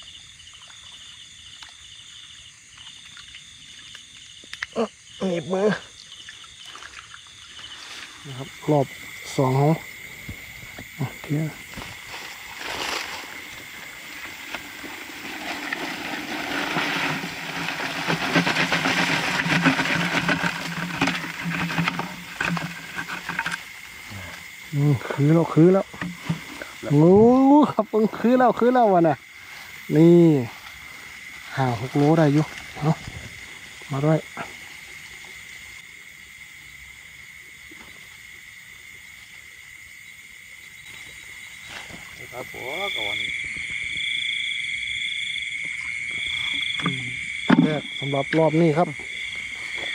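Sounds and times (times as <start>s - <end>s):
night insects trilling: 0.0s - 49.9s
crabs clattering in plastic bucket: 13.9s - 23.8s, 25.5s - 26.8s.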